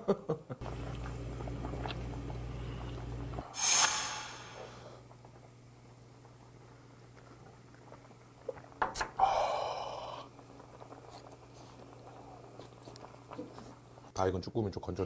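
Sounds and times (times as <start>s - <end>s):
person slurping food: 3.6s - 4.8s.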